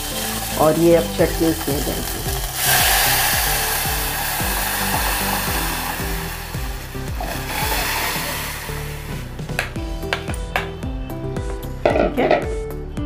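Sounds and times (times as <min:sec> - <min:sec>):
oil sizzling loudly: 0:00.0 - 0:09.8.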